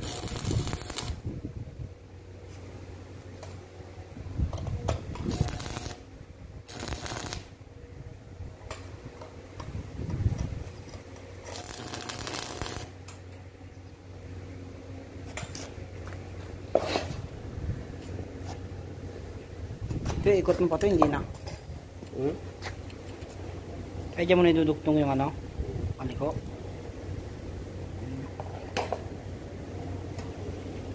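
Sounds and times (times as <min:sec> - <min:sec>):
welding arc crackling hiss: 0:00.0 - 0:01.3, 0:05.2 - 0:07.6, 0:11.4 - 0:13.0
steady hum: 0:00.0 - 0:30.9.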